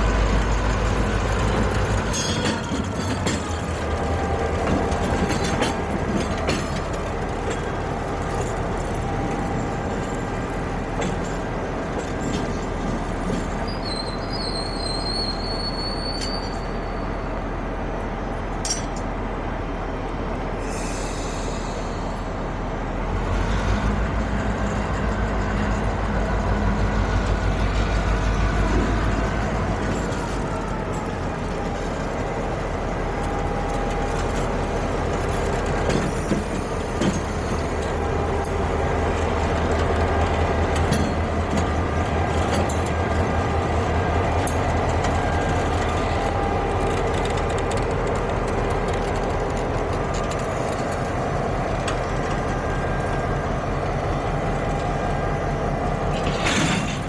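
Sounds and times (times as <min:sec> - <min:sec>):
diesel locomotive engine droning: 0:00.0 - 0:57.0
high wheel squeal: 0:13.6 - 0:17.1.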